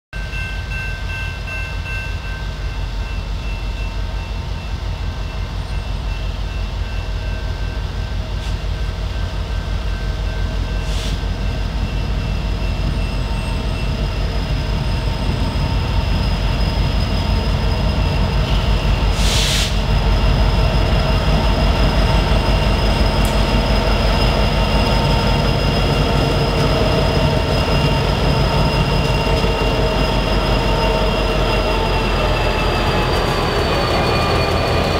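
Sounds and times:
high-pitched ringing tones: 0.2 - 19.2, 19.8 - 34.9
diesel locomotive engine rumble: 0.2 - 34.9
short hiss: 10.8 - 11.2, 19.2 - 19.9.

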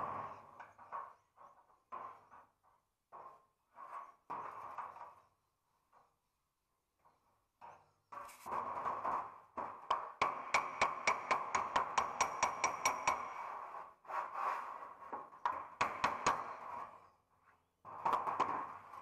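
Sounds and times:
metal taps on sheet steel: 9.6 - 13.5.

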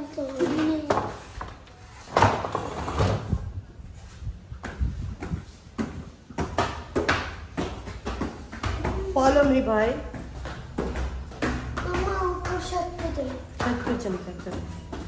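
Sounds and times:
wind rumble on microphone: 3.2 - 6.1
knocks and thumps: 4.6 - 15.0.

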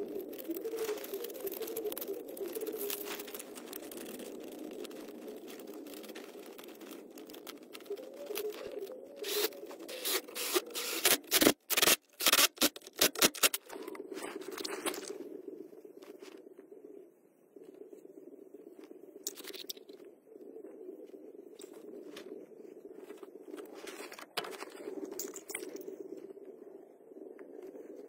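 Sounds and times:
sharp clicks and scrapes: 0.1 - 15.1.

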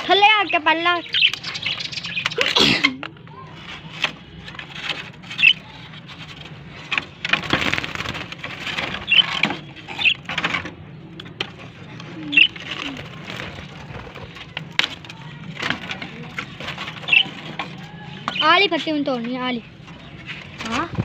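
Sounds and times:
budgerigars chirping: 0.1 - 2.6, 5.3 - 5.7, 8.8 - 10.4, 12.3 - 12.8, 16.8 - 17.5, 18.1 - 18.7
clicks and knocks in cage: 3.8 - 18.5.

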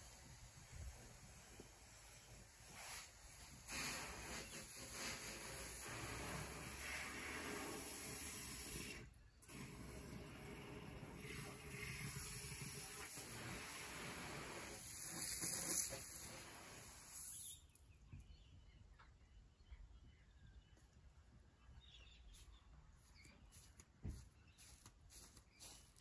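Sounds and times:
garden hose spraying water: 0.0 - 17.8, 23.5 - 26.0.

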